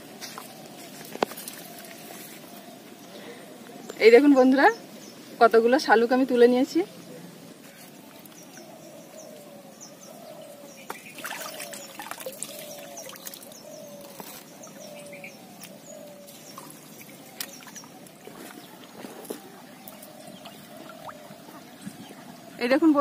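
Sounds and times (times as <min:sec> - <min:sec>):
birds chirping: 0:00.0 - 0:23.0
pond water splashing: 0:10.9 - 0:22.4.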